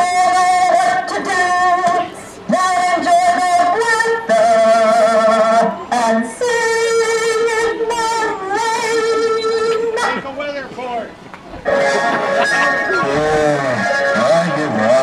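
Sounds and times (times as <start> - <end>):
man singing: 0.0 - 10.2, 12.6 - 15.0
woman singing: 0.0 - 10.2.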